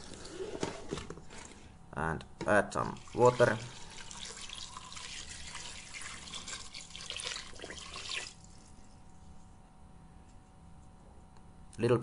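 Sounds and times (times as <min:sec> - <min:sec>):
water pouring and splashing into pot: 0:02.9 - 0:08.7.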